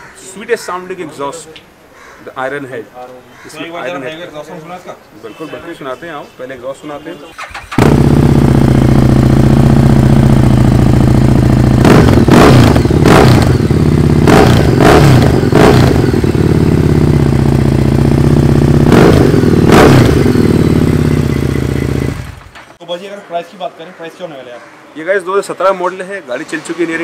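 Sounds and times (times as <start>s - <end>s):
motorcycle engine idling and revving: 7.3s - 22.6s.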